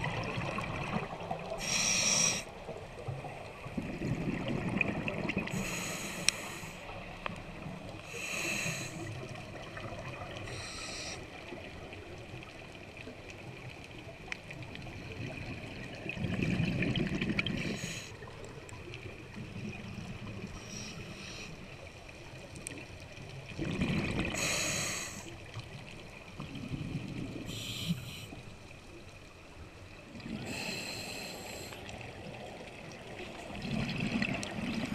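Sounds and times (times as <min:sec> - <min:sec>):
diver breathing through regulator: 0:01.6 - 0:02.5, 0:05.5 - 0:06.9, 0:08.1 - 0:09.1, 0:10.5 - 0:11.2, 0:24.3 - 0:25.3, 0:27.5 - 0:28.4, 0:30.4 - 0:31.8.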